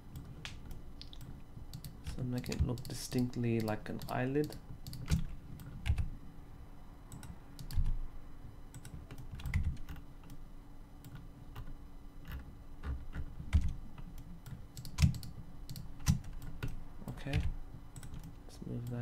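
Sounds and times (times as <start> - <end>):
keyboard keystrokes: 3.6 - 6.1, 14.5 - 18.3.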